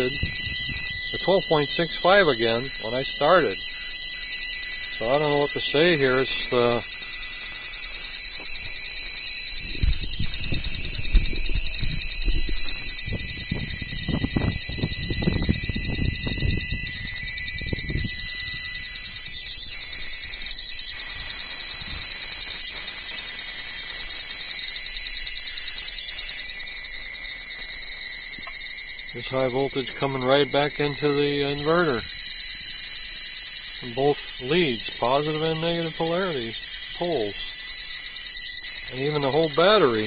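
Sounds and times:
high-pitched electrical whine: 0.0 - 40.0.

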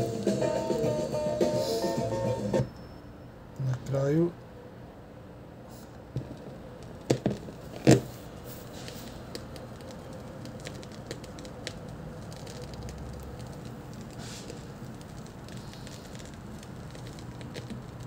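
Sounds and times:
vinyl surface crackle and ticks: 0.0 - 2.2, 6.7 - 18.0.

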